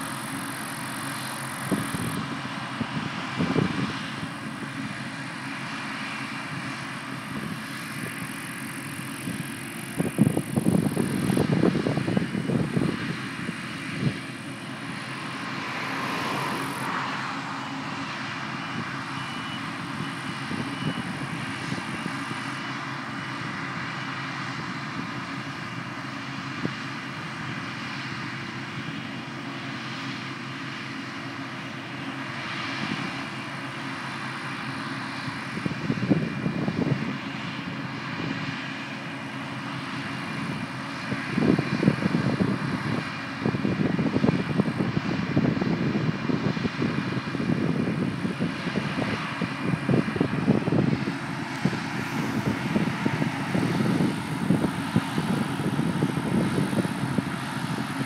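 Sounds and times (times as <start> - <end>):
combine harvester humming: 0.0 - 58.0
low irregular rumble: 35.6 - 58.0.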